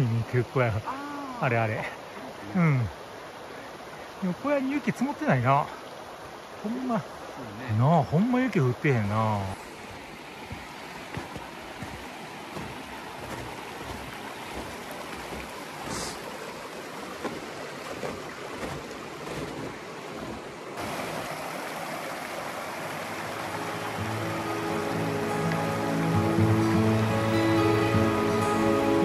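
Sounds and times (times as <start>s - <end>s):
background music: 23.4s - 29.0s.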